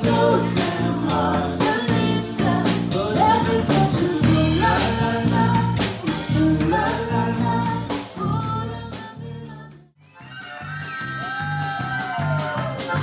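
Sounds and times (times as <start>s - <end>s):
woman singing lead: 0.0s - 9.9s
live rock band playing: 0.0s - 13.0s.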